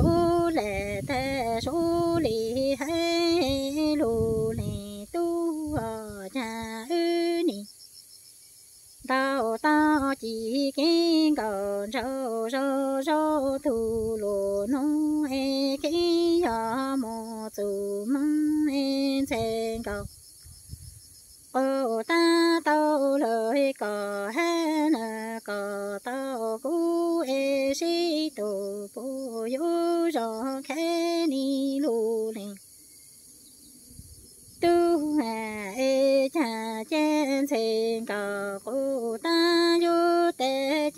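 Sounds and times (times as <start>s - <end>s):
woman singing unaccompanied: 0.0s - 32.8s, 34.5s - 40.9s.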